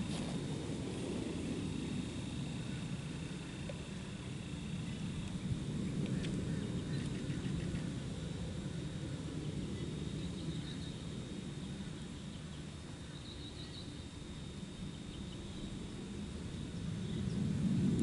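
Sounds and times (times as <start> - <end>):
low rumble: 0.0 - 12.6
faint bird chirps: 2.6 - 8.0, 9.4 - 14.1.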